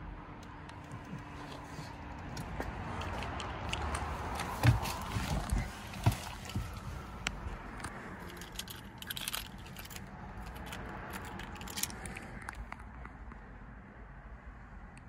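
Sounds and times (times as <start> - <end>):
keys clinking: 8.2 - 12.4.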